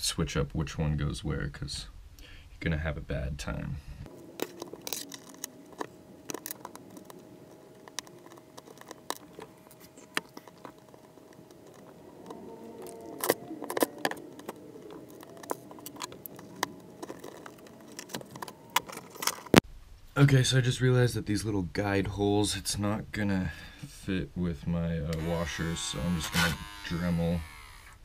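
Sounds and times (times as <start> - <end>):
metal washers and screws clinking: 4.3 - 19.6.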